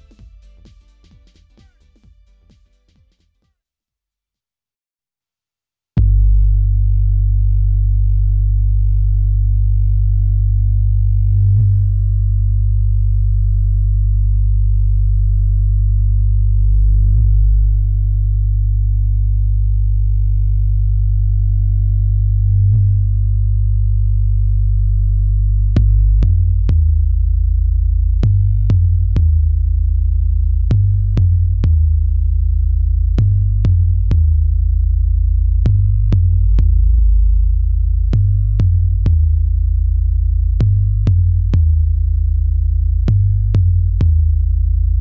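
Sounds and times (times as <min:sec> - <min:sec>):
drum-machine hits: 0:00.0 - 0:03.2, 0:33.2 - 0:34.5, 0:35.6 - 0:37.3, 0:38.2 - 0:39.5, 0:40.6 - 0:42.0, 0:43.1 - 0:44.4
deep sub-bass tones: 0:06.0 - 0:45.0.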